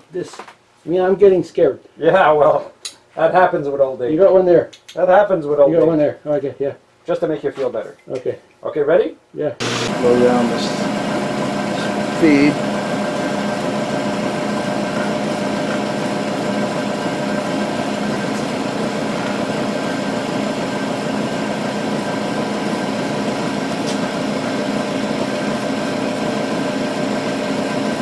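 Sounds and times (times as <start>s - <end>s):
milling machine cutting metal: 9.6s - 28.0s.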